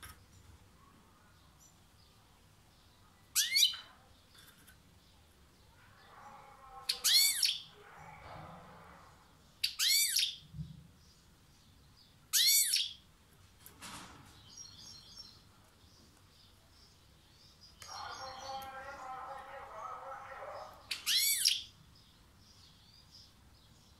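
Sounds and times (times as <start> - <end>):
soft bird twittering: 2.8 - 4.0, 9.6 - 10.4, 11.0 - 13.0, 20.6 - 23.9.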